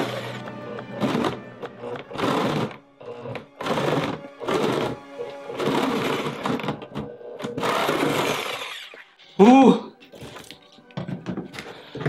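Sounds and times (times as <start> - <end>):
jigsaw cutting plastic: 0.0 - 9.1
background music: 0.0 - 12.0.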